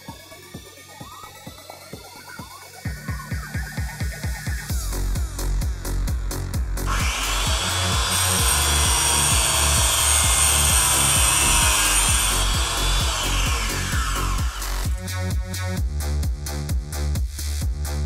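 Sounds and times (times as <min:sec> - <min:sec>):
electronic music with beat: 0:00.0 - 0:18.0
chain sharpening grinder whine: 0:06.8 - 0:15.0.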